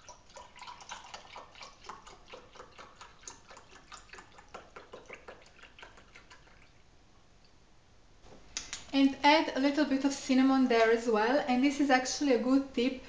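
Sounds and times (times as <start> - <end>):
milk pouring into a glass: 0.0 - 6.8.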